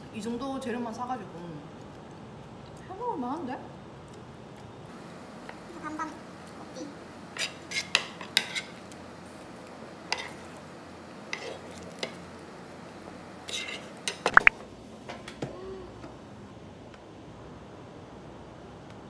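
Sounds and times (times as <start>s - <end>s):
spoons scraping a plate: 7.4s - 8.8s, 10.1s - 10.5s, 11.3s - 12.2s, 13.4s - 14.5s.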